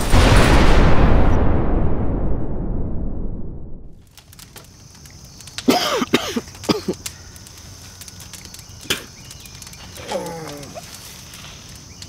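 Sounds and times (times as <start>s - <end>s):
man coughing: 5.7s - 7.0s
man groaning in pain: 10.0s - 10.8s.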